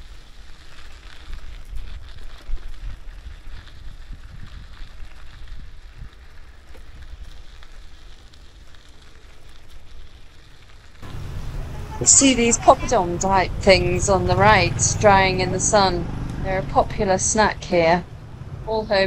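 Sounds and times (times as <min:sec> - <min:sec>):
bicycle tyres rolling on dirt: 0:00.0 - 0:19.0
wind buffeting microphone: 0:01.7 - 0:07.3, 0:11.0 - 0:19.0.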